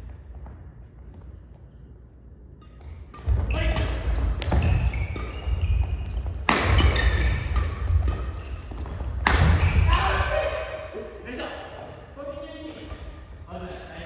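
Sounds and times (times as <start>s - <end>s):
racket striking shuttlecock: 2.6s - 9.7s
shoes squeaking on wooden floor: 3.4s - 10.0s.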